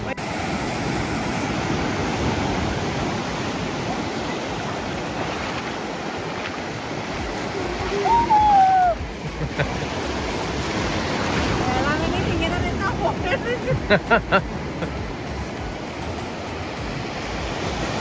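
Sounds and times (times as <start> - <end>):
waves washing up a beach: 0.0 - 18.0
person crying out: 7.8 - 9.1.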